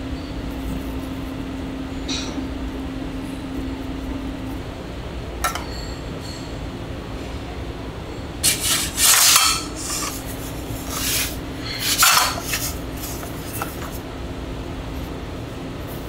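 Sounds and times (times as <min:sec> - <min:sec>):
steady low hum: 0:00.0 - 0:16.0
rasping scraping strokes: 0:08.4 - 0:14.0.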